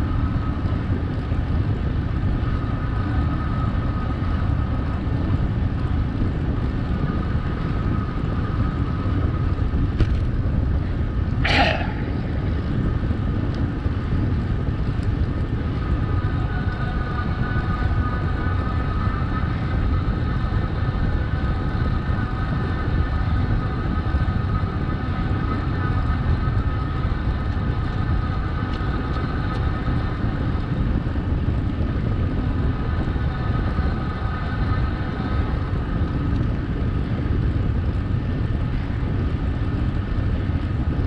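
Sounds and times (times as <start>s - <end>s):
wind buffeting microphone: 0.0s - 41.0s
mid-pitched whine: 6.6s - 30.4s.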